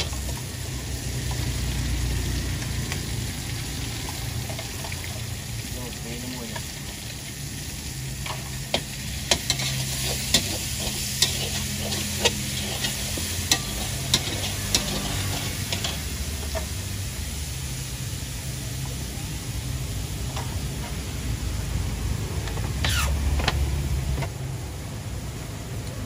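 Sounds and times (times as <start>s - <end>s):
greens sizzling in a wok: 0.0s - 26.0s
metal spatula scraping a wok: 8.2s - 16.8s, 22.7s - 23.3s.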